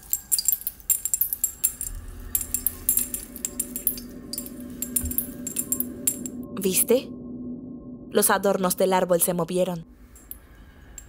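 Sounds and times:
ornaments jingling: 0.0s - 6.5s, 10.1s - 11.0s.

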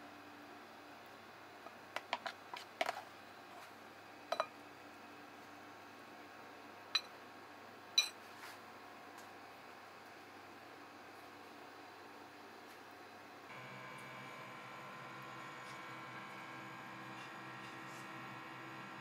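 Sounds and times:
tableware clicking and clinking: 4.3s - 4.5s.

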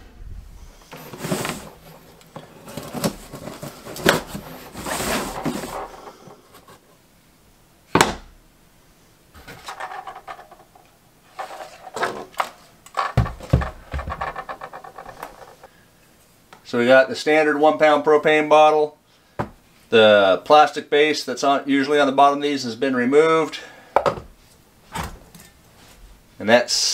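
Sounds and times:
cardboard rustling and scraping: 0.5s - 6.9s, 11.3s - 15.8s
plastic part knocking on wood: 13.0s - 15.4s.

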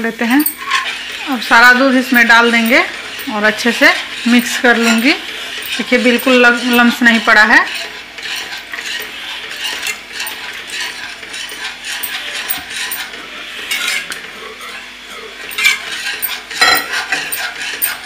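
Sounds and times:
metal utensil scraping metal pan: 0.3s - 18.0s.

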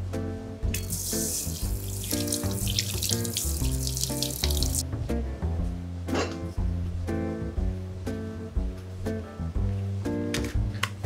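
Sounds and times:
tap running into steel sink: 0.8s - 4.8s.

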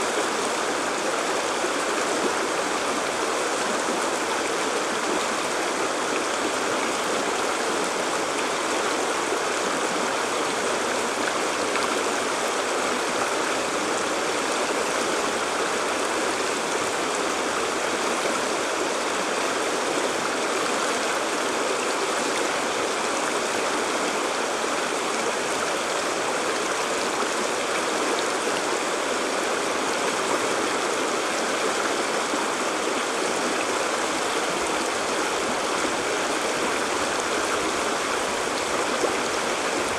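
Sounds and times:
stream water rushing over rocks: 0.0s - 39.9s.

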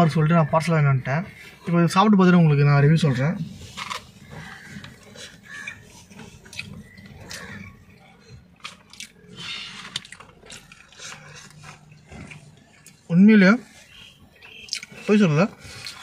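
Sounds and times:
man chewing with wet smacks: 3.6s - 16.0s.

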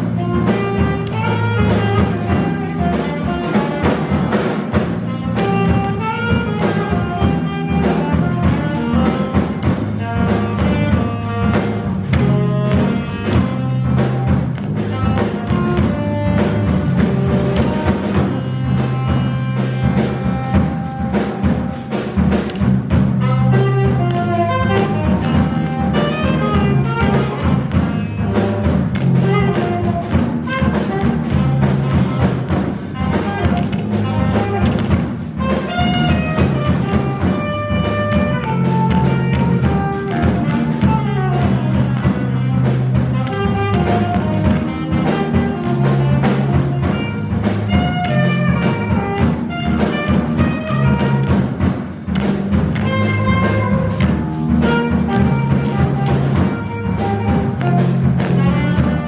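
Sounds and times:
cymbal and drum strokes: 0.0s - 59.0s
jazz trio playing: 0.0s - 59.0s.

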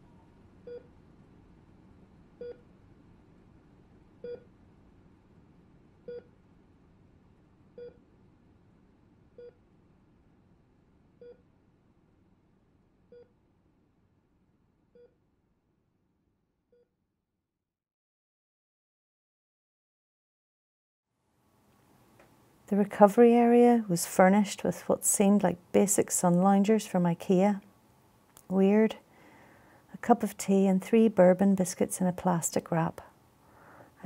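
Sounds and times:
patient monitor short beeps: 6.1s - 6.3s.

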